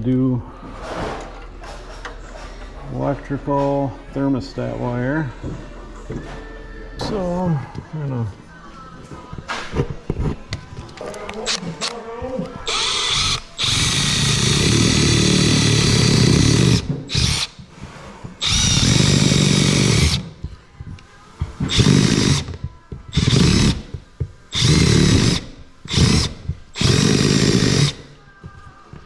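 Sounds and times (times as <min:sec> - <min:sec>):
power tool cutting in bursts: 0:12.7 - 0:17.5, 0:18.4 - 0:20.2, 0:21.7 - 0:22.5, 0:23.2 - 0:23.8, 0:24.5 - 0:28.0.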